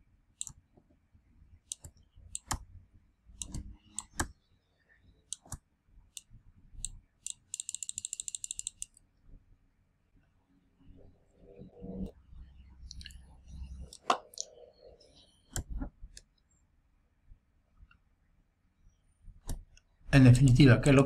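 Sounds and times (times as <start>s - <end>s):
computer mouse clicking: 0.4s - 0.6s, 1.7s - 2.6s, 3.4s - 4.4s, 5.3s - 9.0s
scroll wheel ticking: 1.7s - 2.6s, 3.4s - 4.3s, 5.3s - 9.0s.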